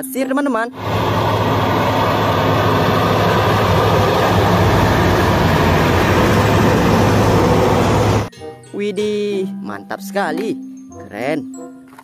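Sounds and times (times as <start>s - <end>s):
haul truck diesel engine: 0.8s - 8.3s.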